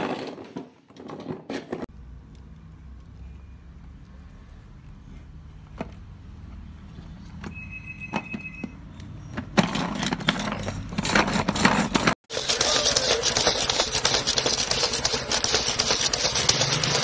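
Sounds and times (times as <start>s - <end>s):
food chopper rattling: 9.6s - 17.0s.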